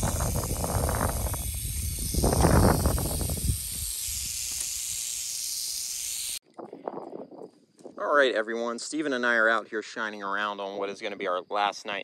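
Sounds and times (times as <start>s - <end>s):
rattlesnake rattling: 0.0s - 8.0s.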